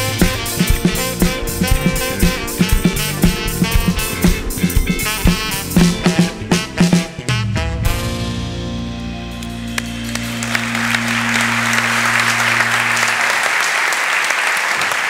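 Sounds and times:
electric guitar: 0:00.0 - 0:13.3
saxophone: 0:00.0 - 0:13.6
drums: 0:00.0 - 0:14.0
keyboard: 0:00.0 - 0:14.4
audience applause: 0:09.8 - 0:15.0.

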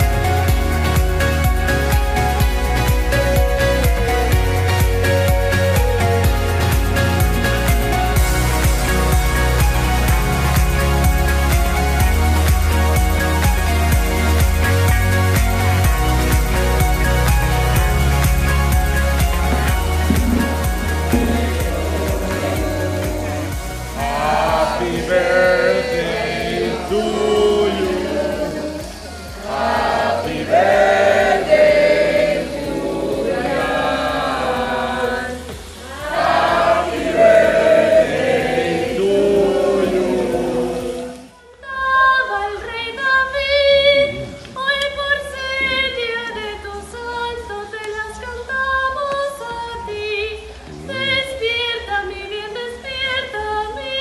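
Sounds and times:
singing over a steady beat: 0:19.4 - 0:54.0.

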